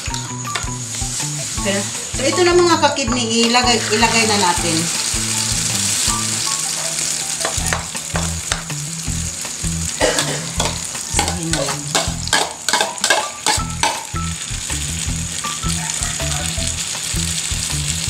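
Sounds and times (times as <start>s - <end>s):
batter sizzling in hot oil: 0.0s - 18.0s
spatula scraping and tapping pan: 7.4s - 8.8s, 10.2s - 14.2s.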